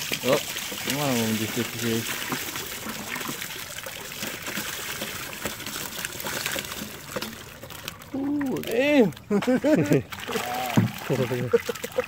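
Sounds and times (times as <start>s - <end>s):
water and fish poured from bucket: 0.0s - 12.0s
water splashing onto lake: 0.0s - 12.0s.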